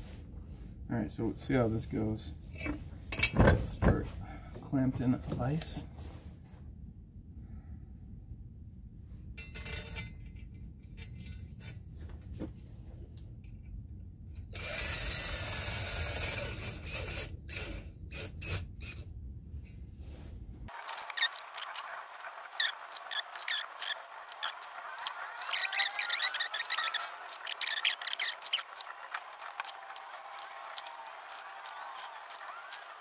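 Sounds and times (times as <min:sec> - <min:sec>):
cordless drill running: 0:14.5 - 0:19.0, 0:20.7 - 0:33.0.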